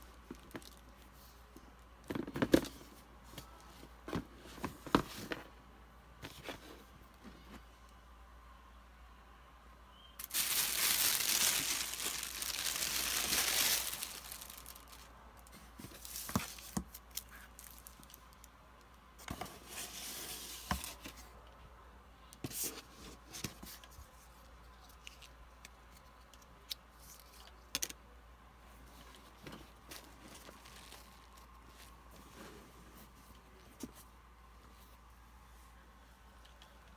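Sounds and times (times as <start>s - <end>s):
packaging crinkling: 10.2s - 18.5s.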